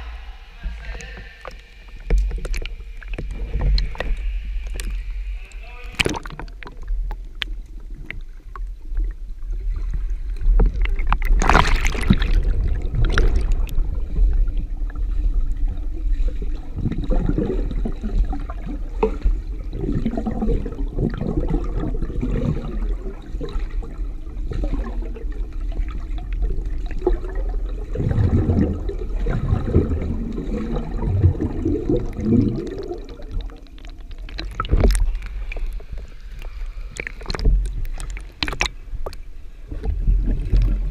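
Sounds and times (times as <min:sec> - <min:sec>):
underwater low rumble: 0:00.0 - 0:40.9
water sloshing and gurgling: 0:00.0 - 0:40.9
sharp splash: 0:11.2 - 0:13.6.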